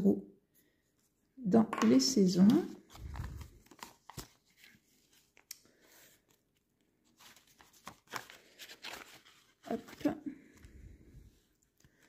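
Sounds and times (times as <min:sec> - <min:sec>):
plastic and paper crinkling: 0:02.4 - 0:05.5, 0:06.2 - 0:10.8.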